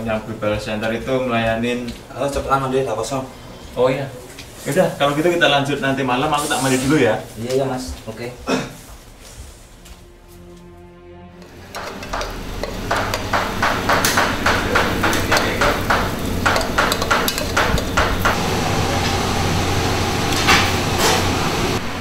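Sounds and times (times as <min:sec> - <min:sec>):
steady hum: 0:08.9 - 0:22.0
utensils knocking against pots: 0:11.4 - 0:18.4.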